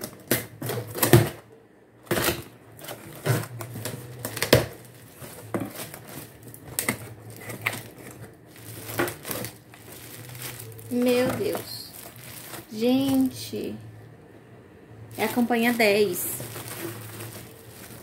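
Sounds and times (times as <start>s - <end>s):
scrapes and knocks of handling: 2.1s - 13.2s, 16.3s - 18.0s.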